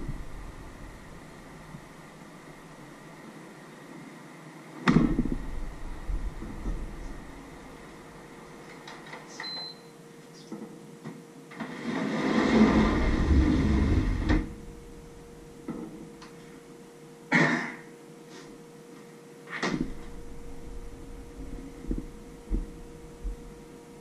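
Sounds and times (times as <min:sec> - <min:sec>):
rushing rumbling noise: 0:00.0 - 0:03.1, 0:04.9 - 0:08.5, 0:11.6 - 0:16.0, 0:19.7 - 0:24.0
faint steady hum: 0:00.0 - 0:24.0.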